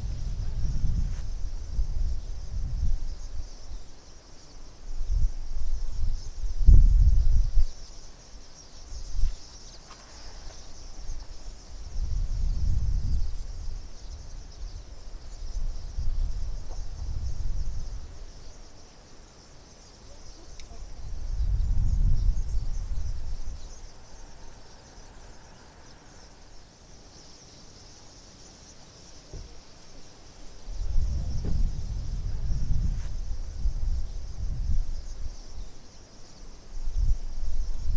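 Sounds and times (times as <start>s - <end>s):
wind buffeting microphone: 0.0s - 3.8s, 4.8s - 7.9s, 10.4s - 18.8s, 20.6s - 26.5s, 30.5s - 35.7s, 36.6s - 37.9s
insects chirring: 0.0s - 37.9s.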